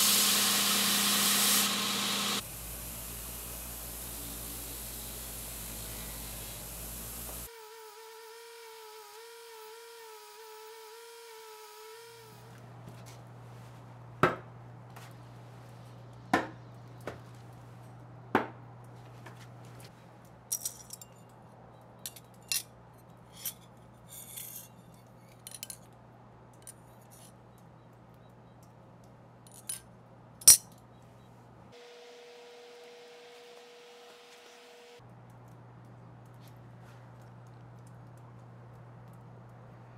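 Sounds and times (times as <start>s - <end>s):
buffing wheel motor hum: 0.0s - 7.5s
light metallic clicks and clinks: 20.5s - 27.7s.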